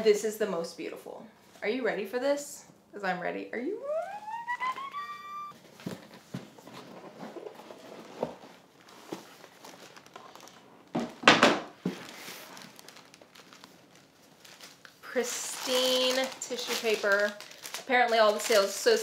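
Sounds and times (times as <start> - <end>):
tissue paper crinkling: 8.5 - 10.8, 11.8 - 19.0.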